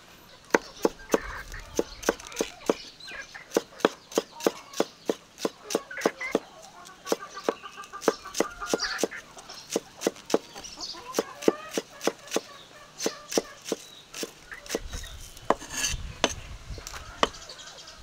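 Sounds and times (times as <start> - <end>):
chickens clucking: 0.0 - 18.0
knife chopping on wooden board: 3.5 - 6.4, 9.7 - 10.5, 11.1 - 14.9, 15.5 - 16.4.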